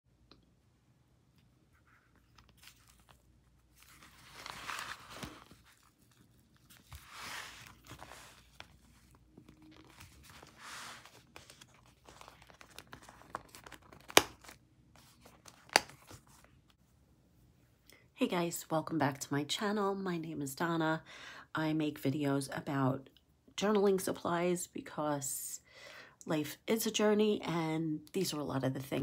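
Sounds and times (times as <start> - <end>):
paper rustling and crinkling: 1.7 - 16.8.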